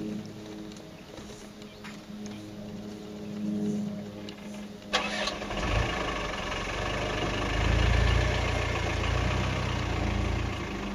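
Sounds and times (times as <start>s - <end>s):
vehicle engine starting and running: 4.2s - 10.9s.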